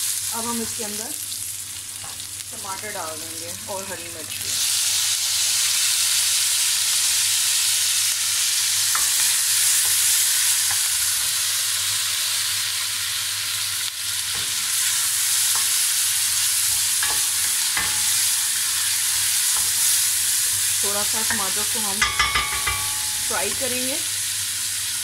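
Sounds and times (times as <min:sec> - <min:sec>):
vegetables sizzling in hot oil: 0:00.0 - 0:25.0
wooden spoon knocking a pot: 0:21.3 - 0:23.3.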